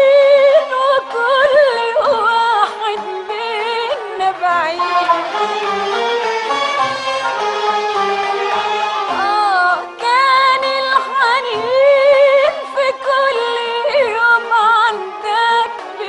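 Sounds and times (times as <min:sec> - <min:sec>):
string ensemble: 0:00.0 - 0:16.0.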